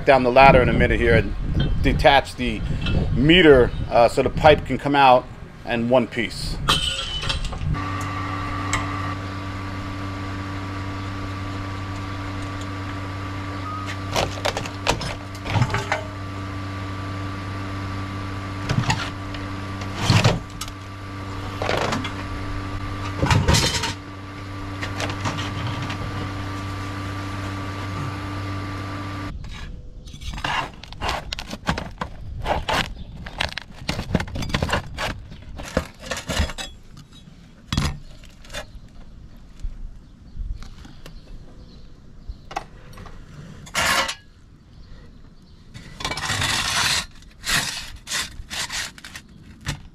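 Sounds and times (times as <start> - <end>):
motor hum: 0.5 - 29.4
sharp knocks and clanks: 6.7 - 9.0, 13.8 - 16.2.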